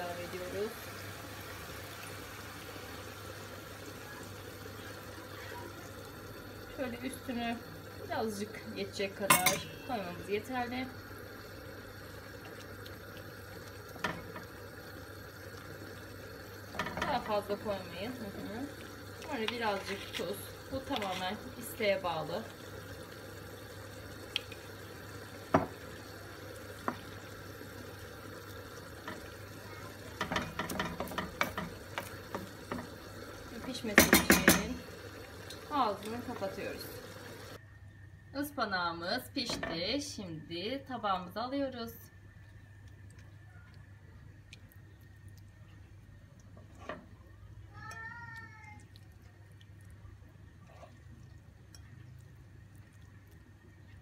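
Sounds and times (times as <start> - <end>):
low steady hum: 0.0 - 54.0
spoon knocking on pot: 9.3 - 9.7, 33.9 - 34.8
spoon stirring wet food: 15.6 - 22.5, 28.8 - 37.4, 42.3 - 54.0.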